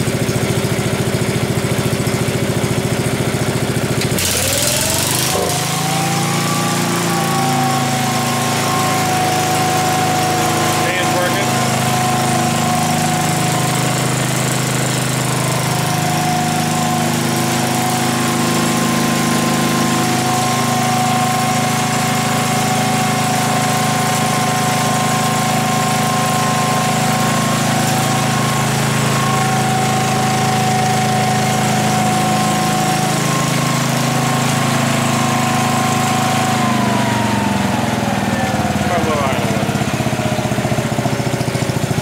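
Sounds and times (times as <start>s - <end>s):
generator engine drone: 0.0s - 42.0s
constant high whine: 7.3s - 13.8s.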